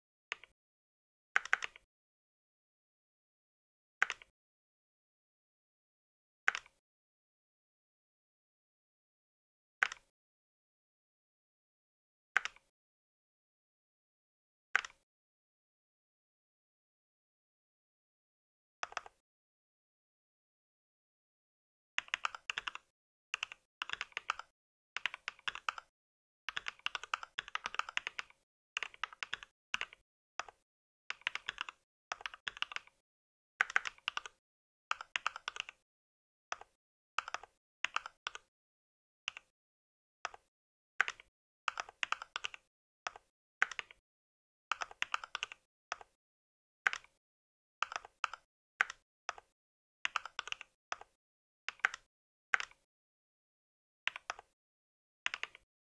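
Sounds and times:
typing on mechanical keyboard: 1.4 - 1.8, 6.5 - 6.8, 22.0 - 25.9, 26.5 - 33.0, 33.6 - 35.8, 36.5 - 38.5, 41.0 - 44.0, 44.7 - 46.2, 46.9 - 47.2, 47.8 - 49.5, 50.1 - 52.8, 54.1 - 54.6, 55.3 - 55.6.

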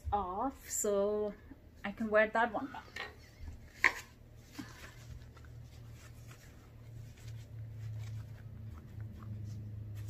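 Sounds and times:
low steady hum: 0.0 - 10.0
paper tissue rustling and scratching: 3.2 - 10.0.

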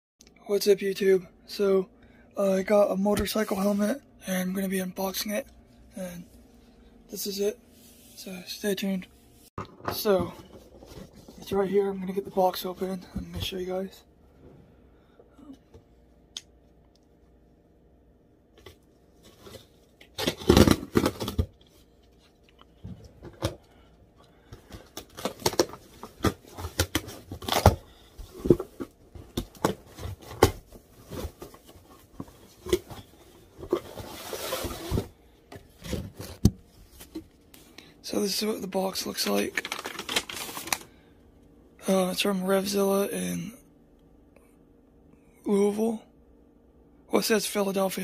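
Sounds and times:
cardboard flaps scraping and crinkling: 25.0 - 37.3.

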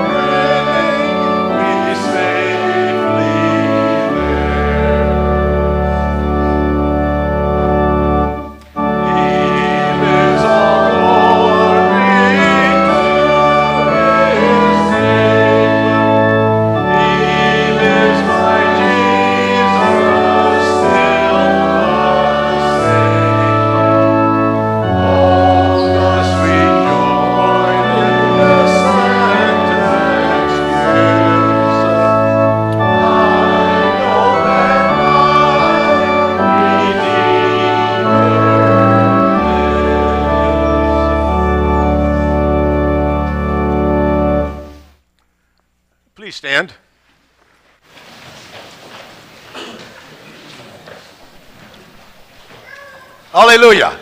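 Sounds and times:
voices singing: 0.0 - 5.6, 8.8 - 42.0
church organ chords: 0.0 - 47.0, 53.4 - 54.0.

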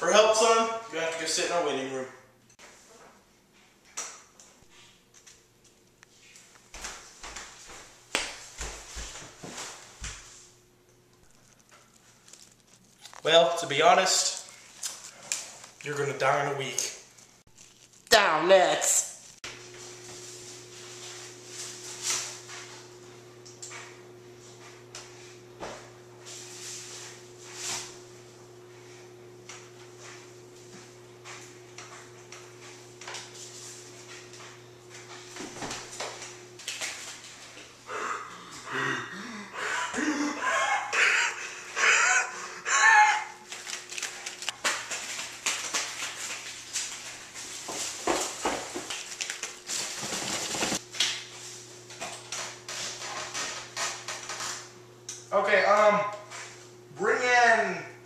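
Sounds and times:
rustling of objects being handled: 11.2 - 19.4, 43.4 - 51.9
objects rustling and knocking: 43.4 - 54.7.

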